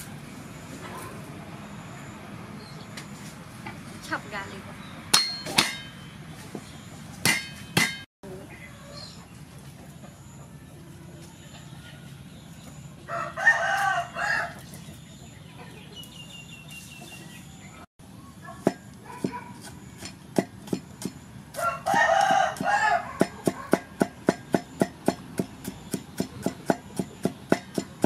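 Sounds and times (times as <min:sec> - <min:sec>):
cleaver chopping on wooden block: 0:05.2 - 0:05.9, 0:07.2 - 0:08.0, 0:20.4 - 0:28.0
rooster crowing: 0:13.0 - 0:14.6, 0:21.5 - 0:23.8.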